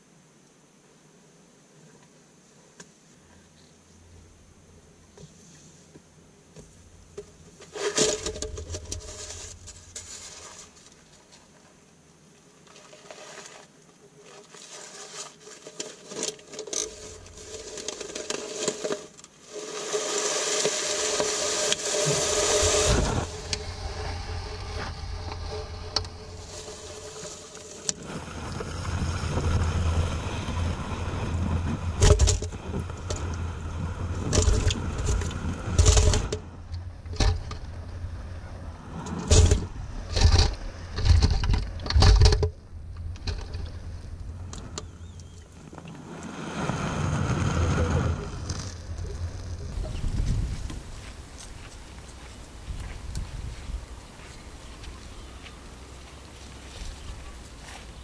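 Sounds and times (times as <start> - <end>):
bird scraping and rustling: 6.6 - 11.8, 12.6 - 29.8.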